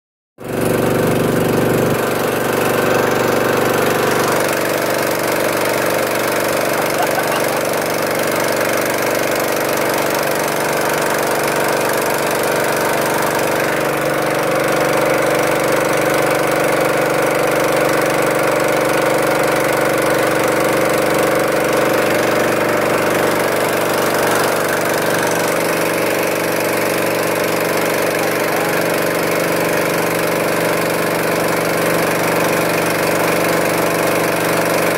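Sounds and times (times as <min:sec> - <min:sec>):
boat engine droning: 0:00.4 - 0:34.9.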